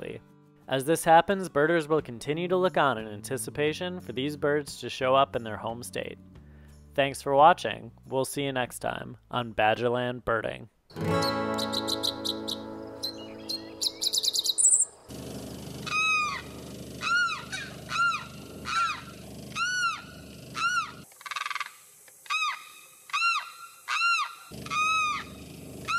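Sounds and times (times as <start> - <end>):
acoustic guitar music: 0.0 - 4.6, 10.9 - 16.8
high chirps: 10.9 - 15.1
limpkin crying: 15.9 - 21.0, 23.2 - 25.3.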